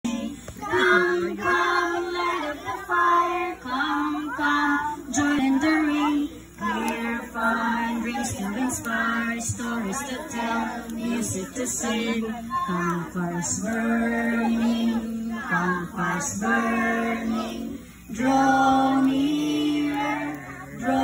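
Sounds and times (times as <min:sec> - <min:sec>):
group singing unaccompanied: 0:00.0 - 0:21.0.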